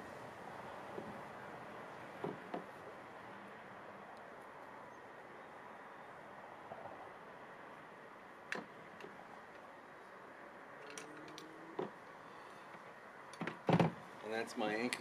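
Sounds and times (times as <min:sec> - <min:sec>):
carabiner and rope clicks: 0:10.8 - 0:11.5.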